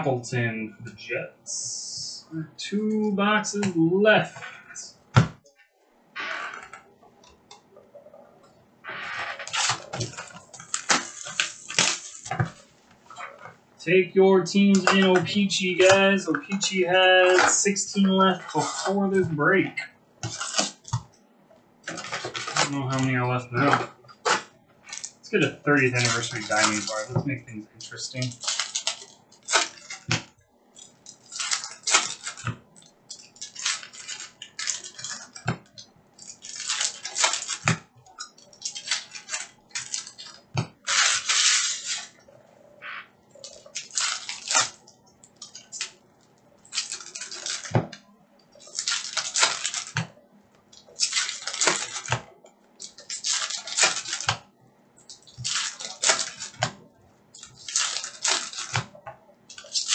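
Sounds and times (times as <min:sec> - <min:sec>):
foil wrappers crinkling and tearing: 0:08.9 - 0:13.4, 0:14.6 - 0:19.6, 0:20.2 - 0:21.1, 0:21.9 - 0:42.2, 0:43.3 - 0:59.9.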